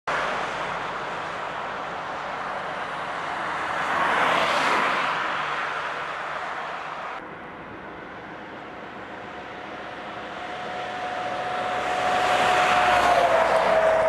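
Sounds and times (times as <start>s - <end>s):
highway traffic hiss: 0.1s - 14.0s
vehicle passing by: 8.9s - 14.0s.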